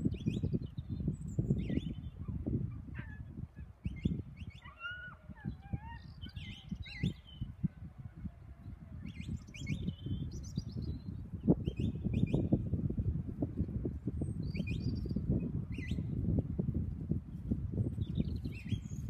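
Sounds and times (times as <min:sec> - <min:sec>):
small birds chirping: 0:00.0 - 0:07.6, 0:09.0 - 0:12.6, 0:17.8 - 0:19.0.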